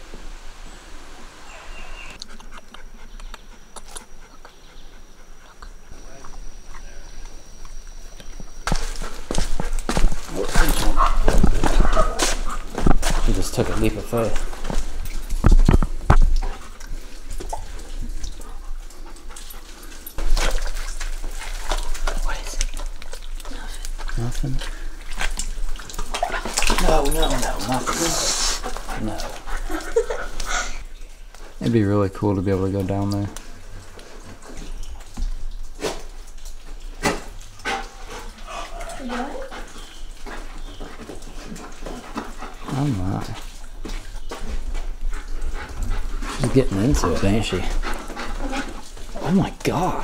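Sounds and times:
background hiss: 0.0s - 50.0s
dog making sharp sounds: 10.4s - 12.7s.

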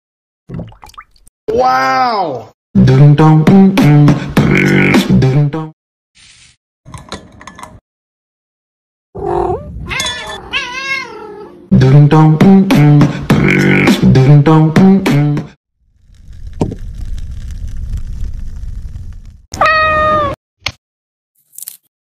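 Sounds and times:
rhythmic vocal music with beat: 2.8s - 5.6s, 11.8s - 15.5s
cat meowing: 9.2s - 11.6s, 19.6s - 20.4s.

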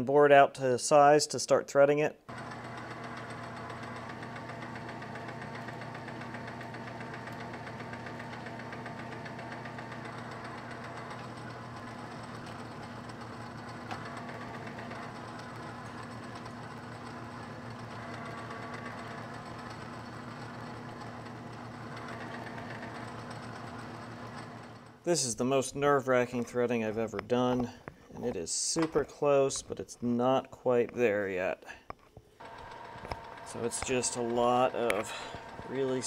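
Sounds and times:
metal lathe running: 2.3s - 25.1s, 32.4s - 36.0s.

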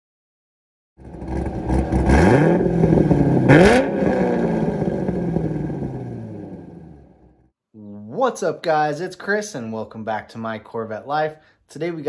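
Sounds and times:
car engine starting and revving: 1.0s - 7.5s.

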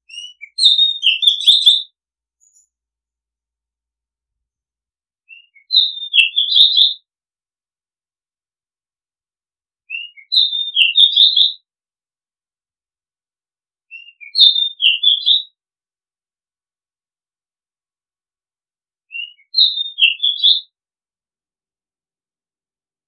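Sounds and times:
bird singing short phrase: 0.0s - 2.7s.

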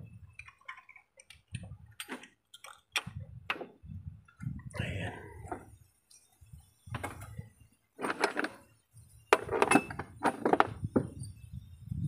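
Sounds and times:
metal tools clinking and rattling: 9.3s - 10.7s.

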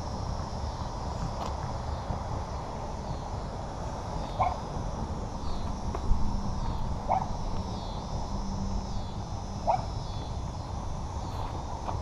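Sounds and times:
low rumble: 0.0s - 12.0s
dog barking: 4.4s - 4.6s, 7.1s - 7.3s, 9.6s - 9.9s.

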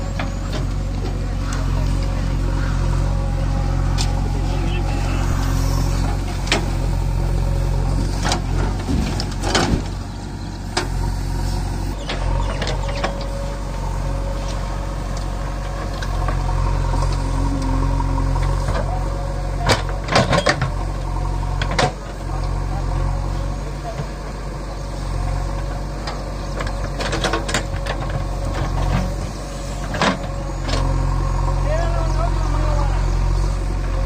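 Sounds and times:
diesel engine under load: 0.0s - 34.0s.

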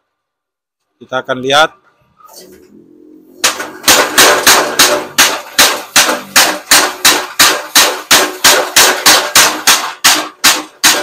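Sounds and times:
power hammer striking steel: 3.4s - 11.0s.

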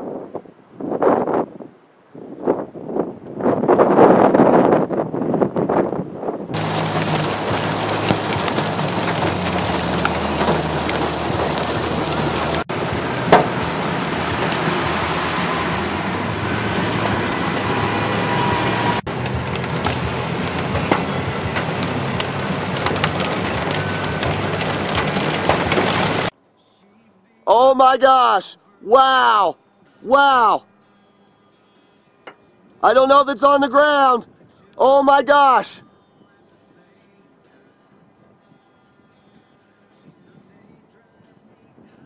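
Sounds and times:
heavy rain on vehicle: 6.6s - 26.3s
engine and road drone: 6.6s - 26.8s.

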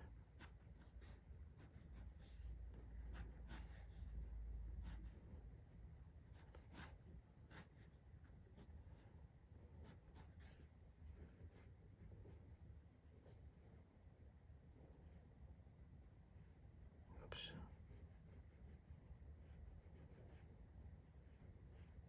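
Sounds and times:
pencil scratching on paper: 0.0s - 5.3s, 6.0s - 9.2s, 9.8s - 12.6s, 17.6s - 22.0s
faint low rumble: 0.0s - 22.0s.

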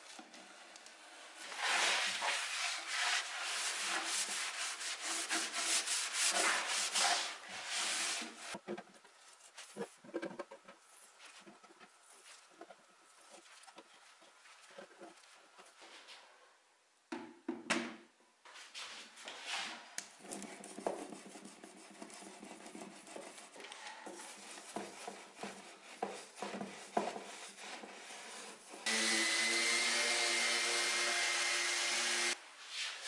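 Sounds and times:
orbital sander running: 28.9s - 32.4s.

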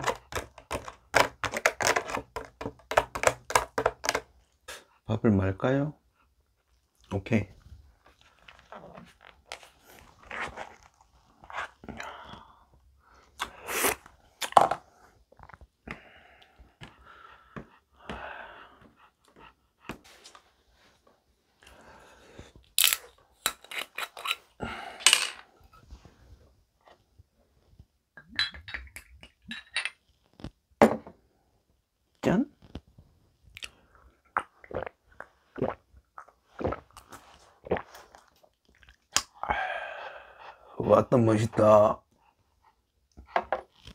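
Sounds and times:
plastic spoon scraping container: 0.0s - 4.3s, 23.5s - 24.6s.

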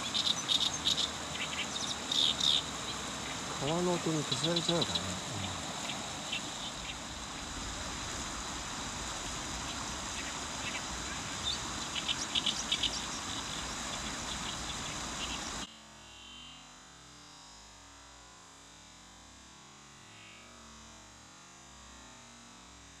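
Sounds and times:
river rushing: 0.0s - 15.6s
reed warbler singing: 0.0s - 15.7s.

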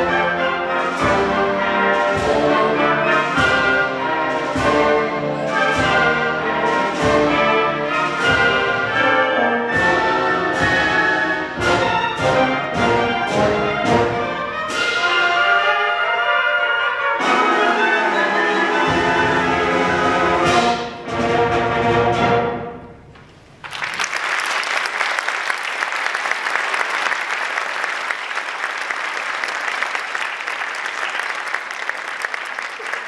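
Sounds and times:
audience applause: 23.6s - 33.0s.

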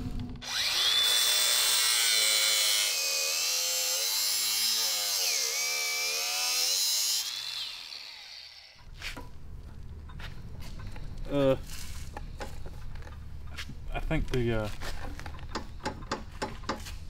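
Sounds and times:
angle grinder cutting metal: 0.4s - 8.8s.

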